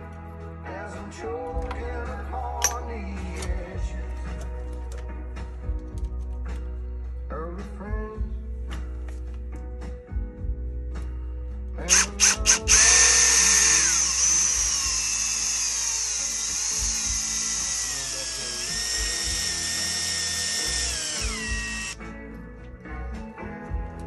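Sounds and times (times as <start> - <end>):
cordless drill motor whining: 11.9 - 22.0.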